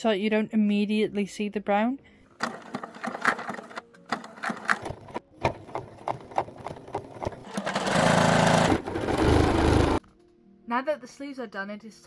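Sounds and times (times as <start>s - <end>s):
sewing machine stitching: 2.4s - 10.0s.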